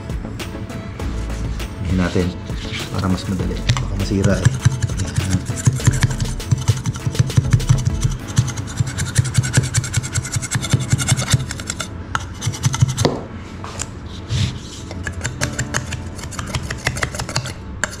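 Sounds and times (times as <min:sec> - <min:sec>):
serrated knife sawing: 0:04.1 - 0:13.0.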